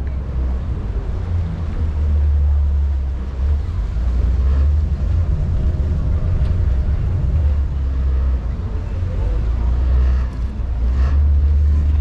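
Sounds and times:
boat engine rumble: 0.0 - 12.0
wind on microphone: 0.0 - 12.0.

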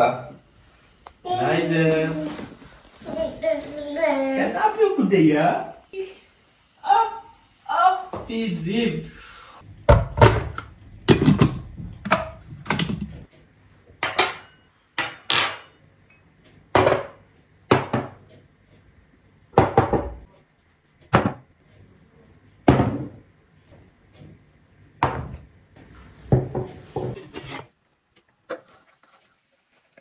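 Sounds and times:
tableware knocking on table: 14.0 - 15.7, 16.8 - 18.2, 19.6 - 20.3, 21.1 - 21.4, 22.7 - 23.2, 25.0 - 25.4.

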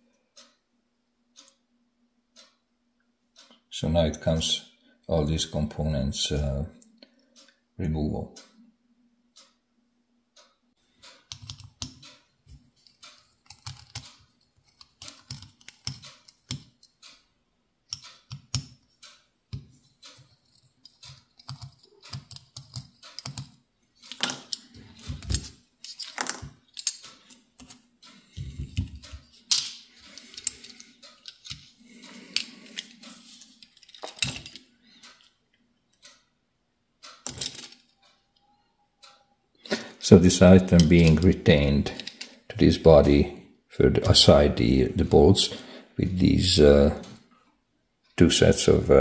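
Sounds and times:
small metal clicks and taps: 10.4 - 17.2, 17.9 - 36.3, 37.0 - 38.2.

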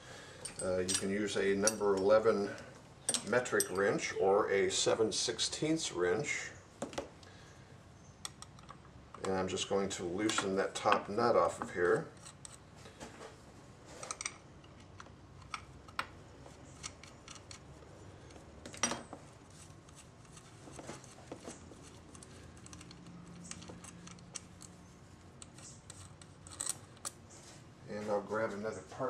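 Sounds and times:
metal clicks of nuts and tools: 3.0 - 4.0, 11.6 - 12.6, 14.0 - 19.0, 21.8 - 27.2.

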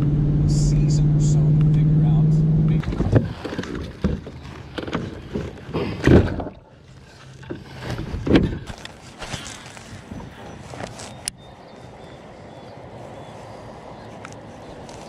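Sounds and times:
knocks and bumps on kayak hull: 2.8 - 6.6, 7.4 - 8.8.

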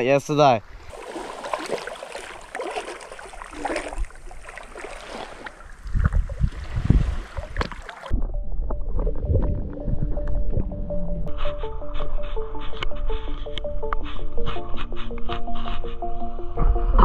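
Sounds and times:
water lapping and sloshing: 0.7 - 8.2
wading splashes: 0.8 - 8.2
wind buffeting microphone: 5.7 - 7.8
music: 8.2 - 17.0.

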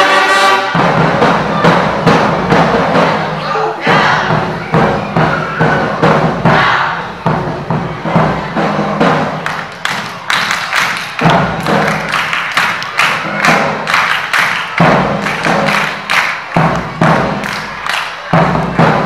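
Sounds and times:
wind band playing: 0.0 - 9.4.

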